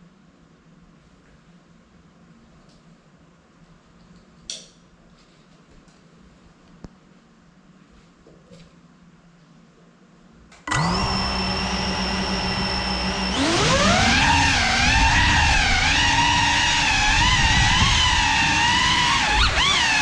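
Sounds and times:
drone motors whining: 10.7 - 20.0.

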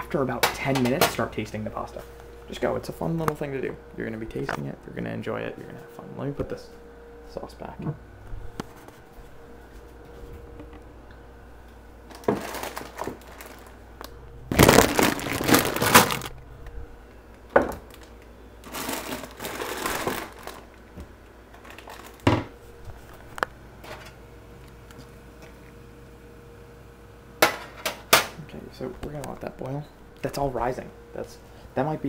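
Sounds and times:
faint steady hum: 0.0 - 32.0
food packaging rustling: 12.1 - 13.8, 14.4 - 16.4, 17.9 - 20.8, 21.5 - 22.3.

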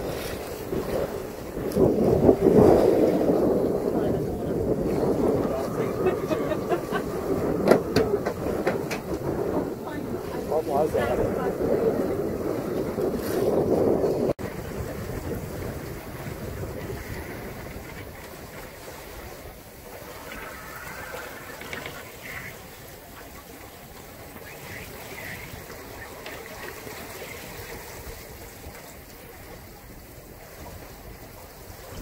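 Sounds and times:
wind rushing: 0.0 - 18.2
water rushing around boat: 0.0 - 32.0.

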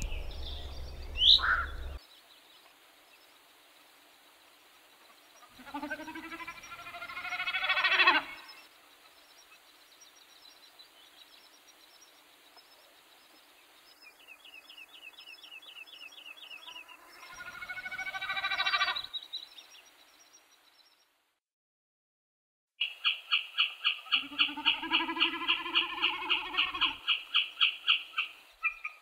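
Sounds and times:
loud drawn-out animal calls: 0.0 - 2.0, 5.4 - 8.7, 16.7 - 19.1, 22.8 - 29.0.

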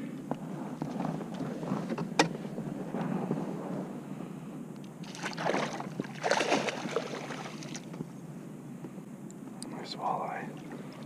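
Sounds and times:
low steady rumble: 0.0 - 11.0
fish splashing in water: 5.0 - 7.9.

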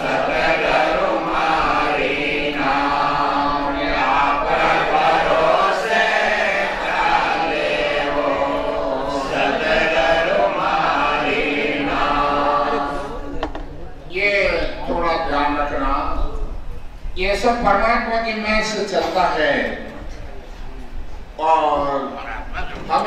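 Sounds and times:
voices chanting along: 0.0 - 13.6.

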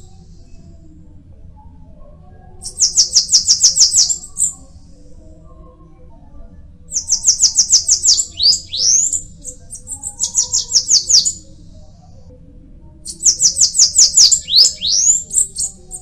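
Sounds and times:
bird singing high descending notes: 7.0 - 9.2, 13.3 - 15.3.

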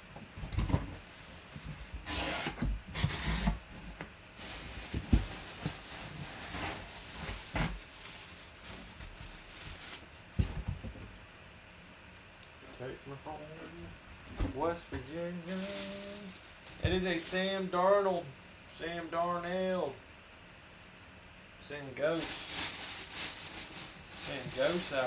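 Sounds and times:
knocks against cardboard box: 10.4 - 11.0.

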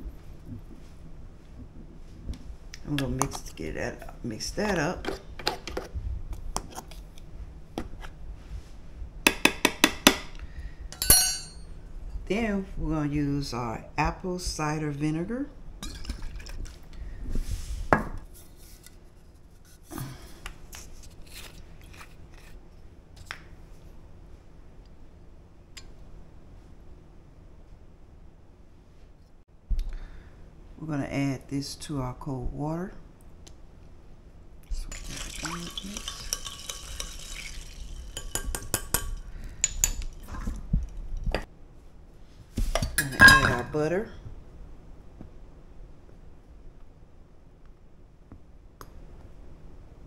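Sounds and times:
utensils clinking against glass: 34.9 - 40.0, 43.0 - 43.6
metal spoon stirring in glass: 34.9 - 40.2.

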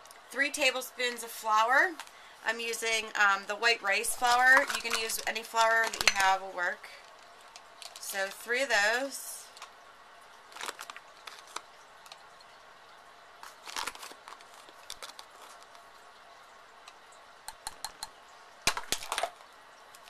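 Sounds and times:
plastic bag crinkling: 4.0 - 8.1, 10.4 - 12.4, 13.4 - 16.5.

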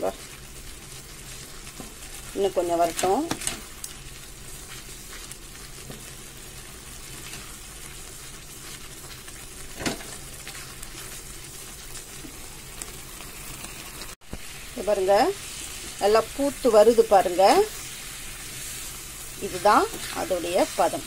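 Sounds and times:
syrup bubbling and sizzling: 0.0 - 21.0
wooden spatula stirring: 0.2 - 13.6.

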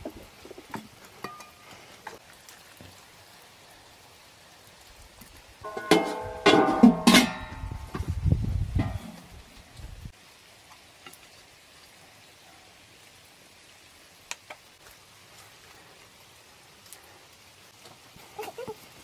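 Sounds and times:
faint outdoor hiss: 0.0 - 19.0.

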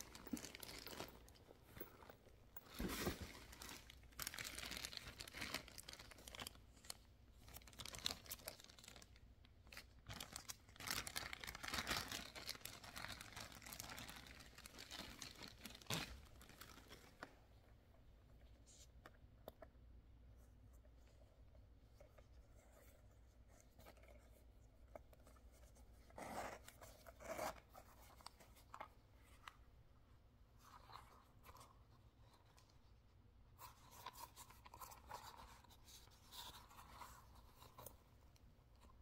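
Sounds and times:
leather pouch clicks and rustling: 0.0 - 6.3.

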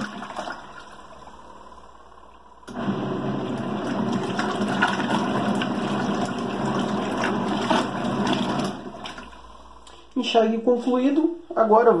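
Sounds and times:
washing machine motor running: 0.0 - 11.1
water churning: 2.8 - 9.6.

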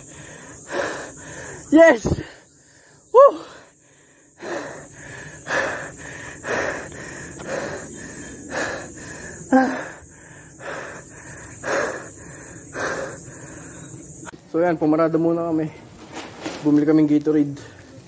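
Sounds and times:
person panting: 0.0 - 13.9.

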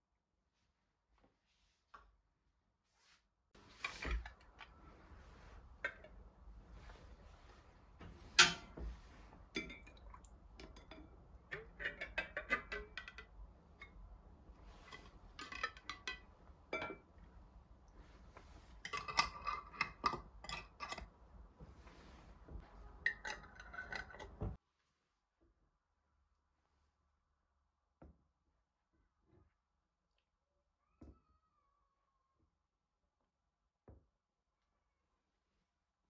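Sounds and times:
dishes and utensils clinking: 8.2 - 14.0, 14.7 - 17.2, 18.8 - 21.1, 22.8 - 24.6.

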